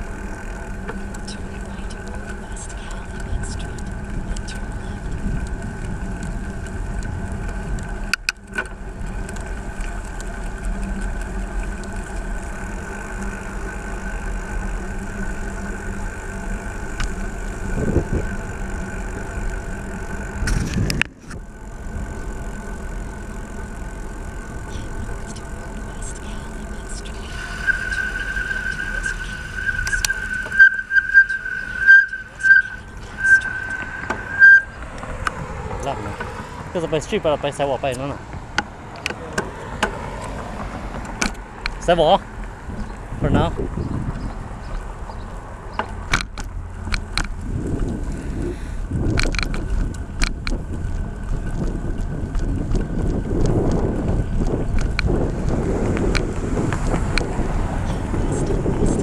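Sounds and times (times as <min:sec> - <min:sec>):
traffic rumble: 0:00.0 - 0:59.0
vehicles passing: 0:00.0 - 0:59.0
wind noise: 0:01.3 - 0:08.1, 0:17.0 - 0:22.2, 0:40.0 - 0:59.0
thin high whine: 0:08.8 - 0:38.2.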